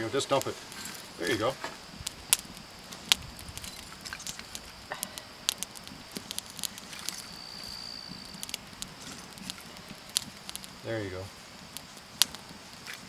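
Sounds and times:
sticks laid onto fire: 0.0s - 10.9s
fire crackling and snapping: 0.0s - 13.0s.

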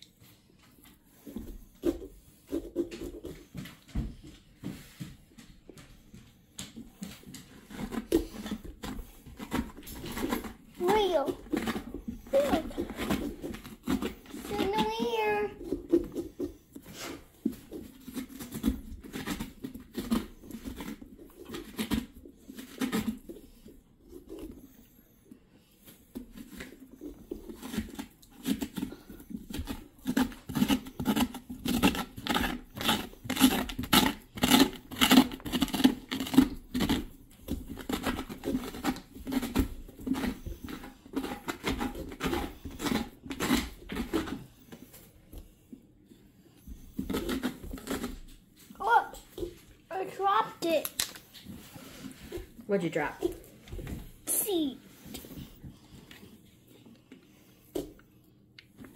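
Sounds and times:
blade cutting pumpkin rind: 7.0s - 24.6s, 25.8s - 44.9s, 46.6s - 55.5s.

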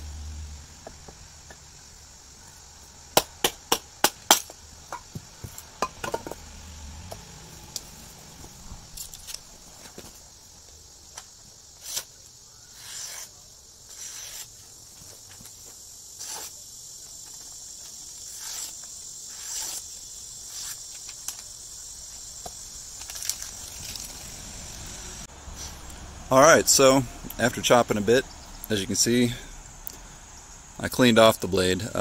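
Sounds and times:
insects buzzing: 0.0s - 32.0s
knife slicing paper: 11.8s - 12.1s, 12.8s - 14.6s, 16.2s - 16.6s, 18.3s - 19.9s.

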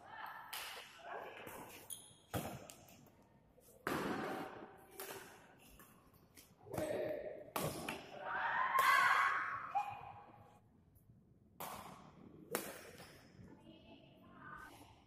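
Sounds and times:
racket hitting shuttlecock: 0.5s - 2.8s, 3.8s - 5.9s, 6.7s - 9.2s, 11.6s - 13.2s.

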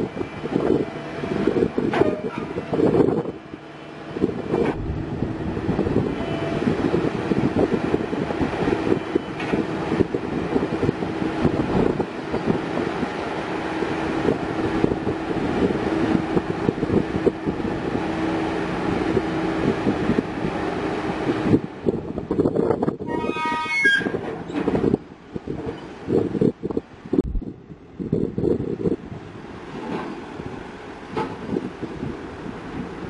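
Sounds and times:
diesel roller engine running: 0.0s - 22.5s.

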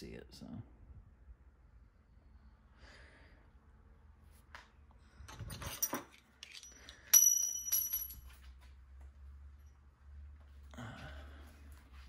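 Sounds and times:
metal parts handled: 5.3s - 8.4s
ringing metallic clinks: 5.7s - 8.3s.

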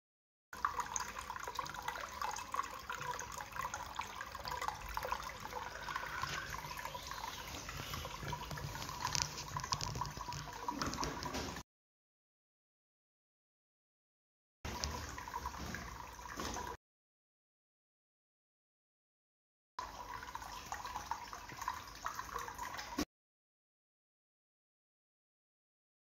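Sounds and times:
fountain water trickling and splashing: 0.6s - 11.6s, 14.7s - 16.8s, 19.8s - 23.1s.

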